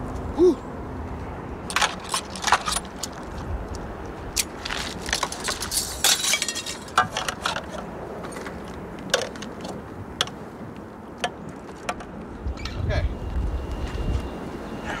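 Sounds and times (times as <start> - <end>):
metal dishes clinking in water: 6.0 - 7.3.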